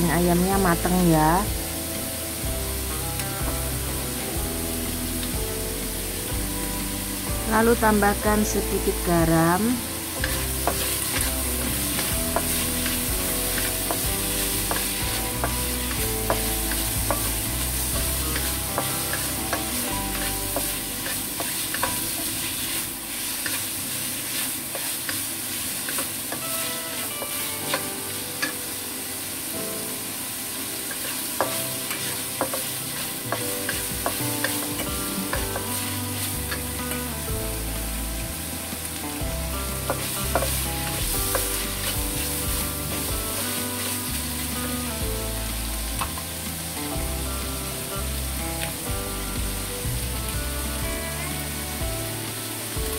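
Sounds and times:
food sizzling in hot oil: 0.0s - 52.9s
spatula scraping and clicking on wok: 10.1s - 28.6s, 30.9s - 37.1s, 39.8s - 44.6s.

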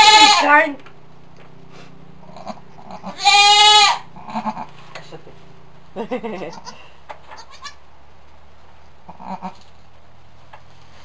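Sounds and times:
goat bleating: 0.0s - 0.7s, 2.2s - 4.8s, 6.4s - 7.8s, 9.1s - 9.6s.

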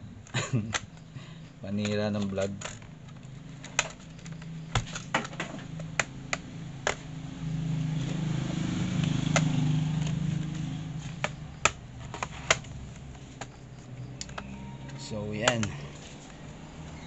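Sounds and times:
motorcycle engine passing: 6.6s - 12.0s
plastic panel clicks: 9.3s - 13.5s, 15.4s - 15.8s.

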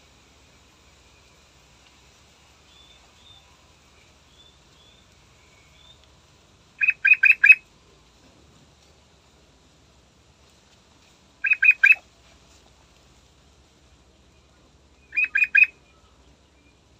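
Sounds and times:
faint high bird chirps: 2.6s - 6.1s, 6.8s - 7.6s, 11.4s - 12.0s, 14.3s - 16.9s.

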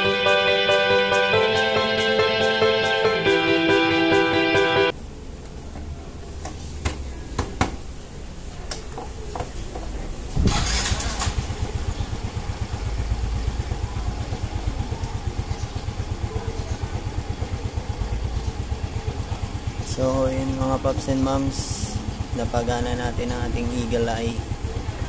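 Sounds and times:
scooter engine starting and idling: 8.7s - 25.0s.

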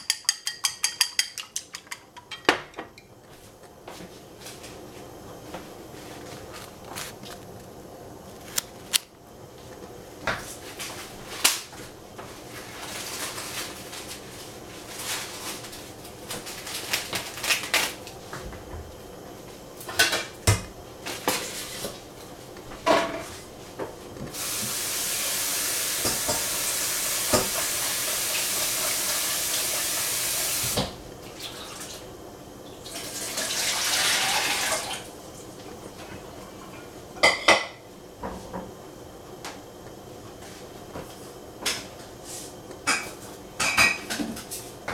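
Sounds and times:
dishes and utensils clinking: 0.0s - 3.1s
water tap running: 24.3s - 32.0s, 32.8s - 35.1s.

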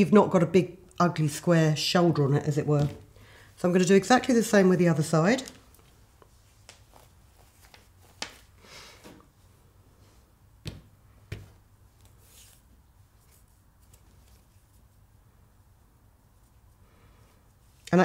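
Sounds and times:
fabric rustling: 5.3s - 17.9s.

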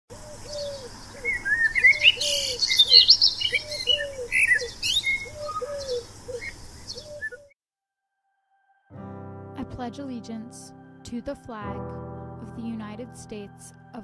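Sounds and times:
songbirds chirping: 0.1s - 7.5s
low cooing bird call: 0.1s - 7.6s.

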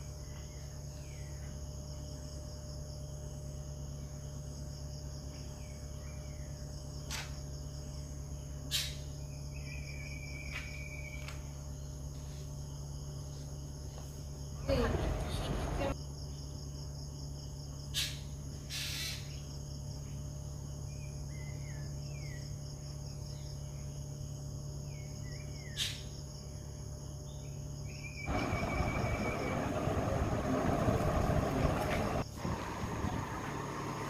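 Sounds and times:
background hum: 0.0s - 34.0s
high steady whine: 28.3s - 34.0s
loud rushing noise: 28.3s - 34.0s.

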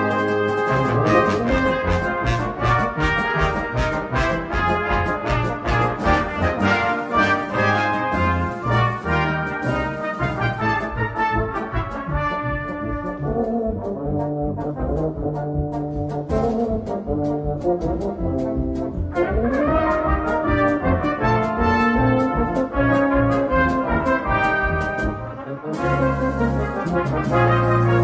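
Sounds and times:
snare and bass drum beat: 0.0s - 13.2s, 15.6s - 28.0s
brass band playing a march: 0.0s - 28.0s.

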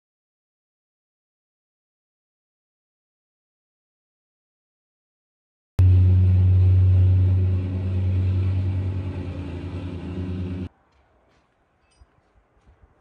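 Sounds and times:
plate compactor engine running: 5.8s - 10.7s.

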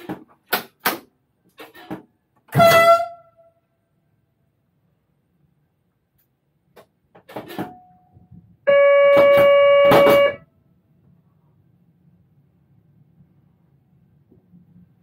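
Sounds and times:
train horn: 2.5s - 3.6s, 8.7s - 10.5s.

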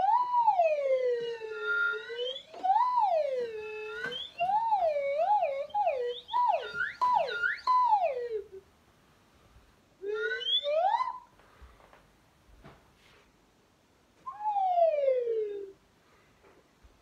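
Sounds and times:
slide whistle swooping: 0.0s - 8.4s, 10.0s - 11.3s, 14.3s - 14.9s.

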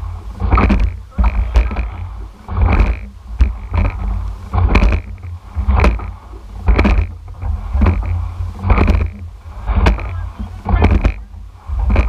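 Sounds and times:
low rumble of wind and water: 0.0s - 12.0s
oars knocking in oarlocks: 0.4s - 12.0s.

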